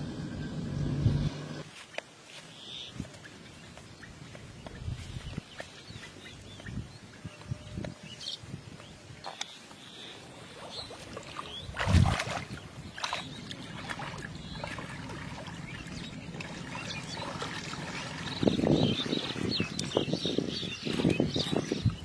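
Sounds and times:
hands splashing in muddy water: 10.6 - 22.0.

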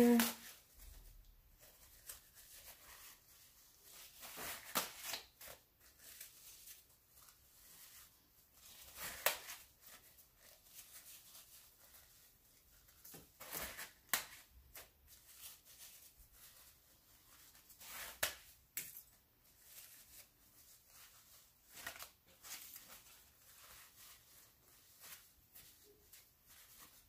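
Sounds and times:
tissue paper crinkling: 0.0 - 27.0.

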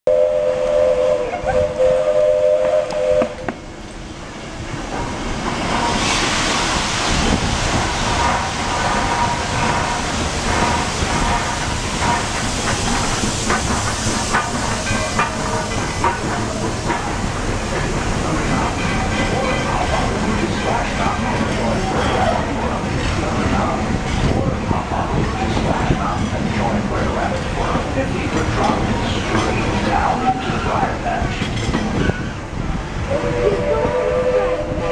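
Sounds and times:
steam locomotive whistle: 0.1 - 3.6, 33.0 - 34.9
train hiss and running noise: 0.2 - 34.9
train cars knocking and rattling: 1.2 - 34.9.

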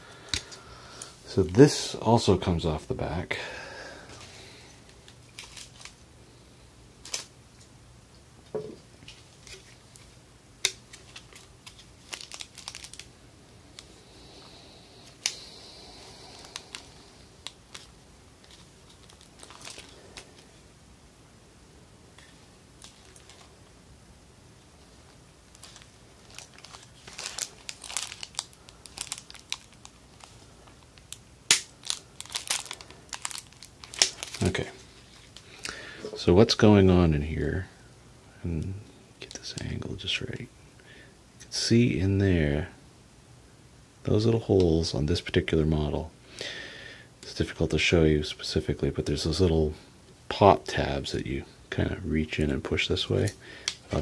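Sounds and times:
plastic crinkling and crackling: 4.9 - 6.0, 9.0 - 13.1, 16.3 - 20.6, 22.2 - 23.6, 25.0 - 36.2.

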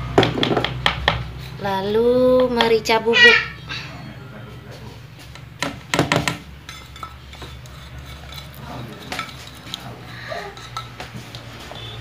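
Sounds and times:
knife scraping on plate: 6.6 - 11.3.

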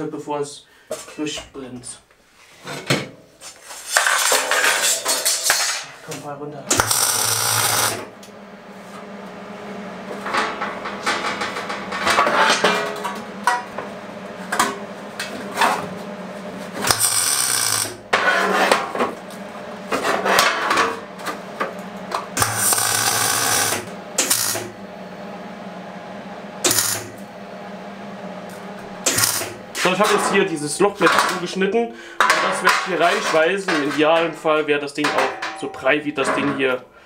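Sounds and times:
steady low hum: 6.3 - 34.3
welder arc crackle: 6.7 - 8.4, 10.2 - 19.6, 20.2 - 25.3, 26.5 - 30.2.

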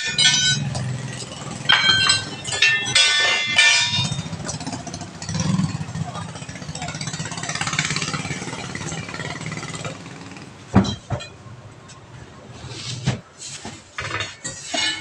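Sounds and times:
tool clinking on metal rim: 0.0 - 4.7, 14.1 - 15.0
engine idling hum: 0.0 - 10.8.

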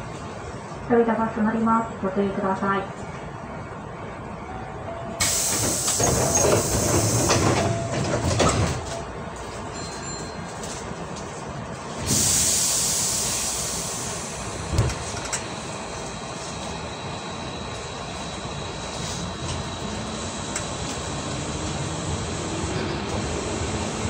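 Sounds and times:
air hiss of train doors: 5.2 - 7.6, 11.9 - 15.3.

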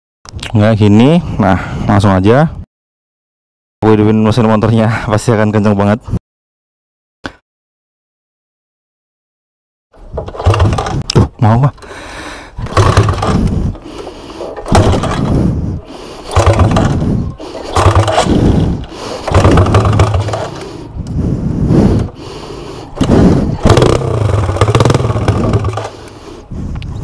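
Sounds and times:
motorcycle engine kick-starting: 10.0 - 20.9, 22.0 - 26.3.

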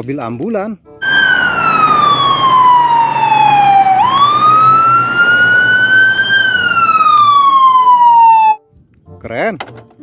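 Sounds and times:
ambulance siren wailing: 1.0 - 8.6.

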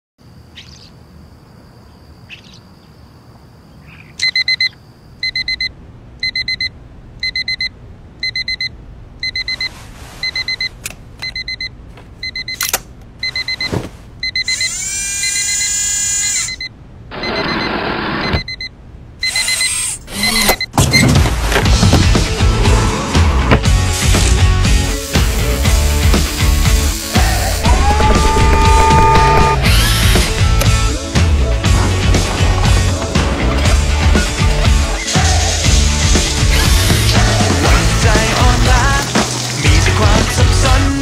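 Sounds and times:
alarm clock beeping: 4.2 - 12.6, 13.2 - 20.7.

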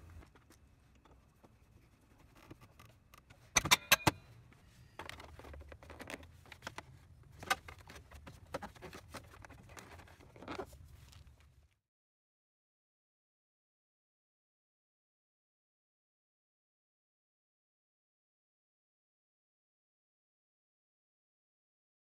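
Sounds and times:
metal tools clicking and clinking: 3.6 - 4.2
soft rustle on rubber mat: 4.6 - 11.8.

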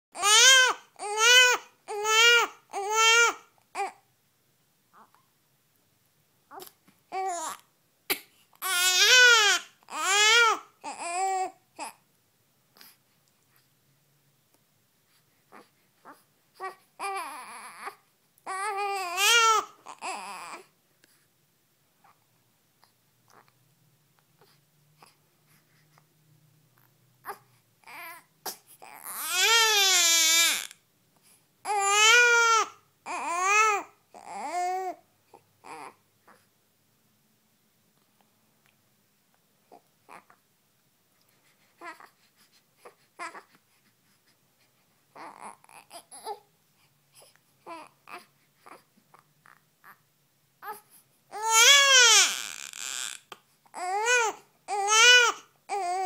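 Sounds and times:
baby crying and whimpering: 0.2 - 4.0, 6.5 - 12.0, 15.5 - 20.7, 27.2 - 30.8, 31.6 - 36.4, 41.7 - 43.6, 45.1 - 46.5, 47.2 - 50.0, 50.6 - 56.0.

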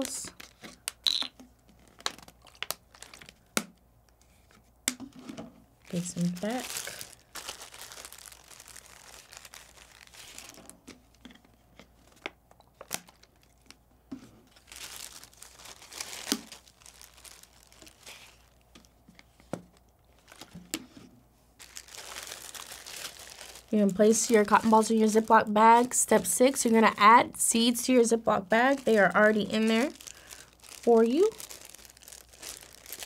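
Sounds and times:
plastic bag crinkling: 1.8 - 3.5, 5.8 - 11.2, 14.5 - 20.7, 21.6 - 33.0.

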